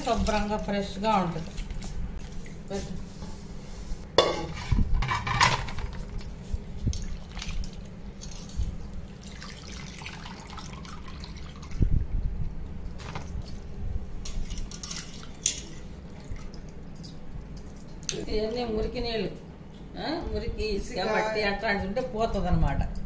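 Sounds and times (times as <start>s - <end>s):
water splashing in a bowl: 6.9s - 11.9s.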